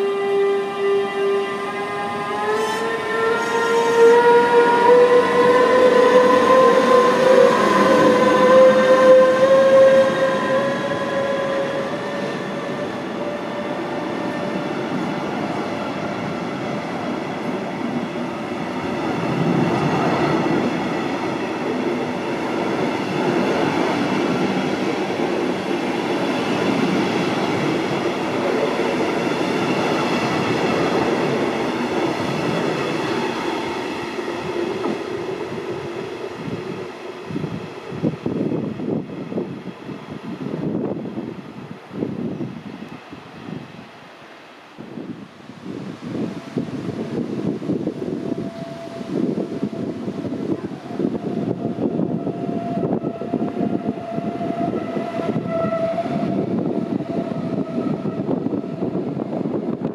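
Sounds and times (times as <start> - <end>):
train traction motors whining: 0.0 - 14.6
train wheels rumbling: 0.0 - 39.4, 46.5 - 59.9.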